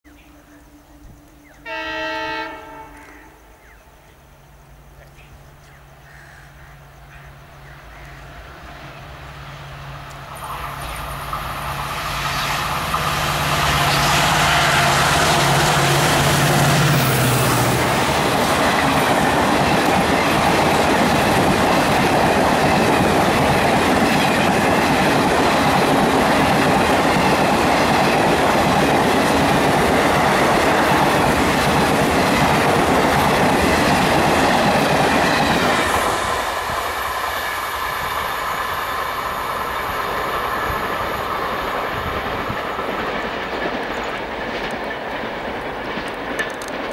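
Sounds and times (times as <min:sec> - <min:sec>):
diesel locomotive engine passing: 0:00.1 - 0:46.9
train wheels clattering over rail joints: 0:42.2 - 0:46.9.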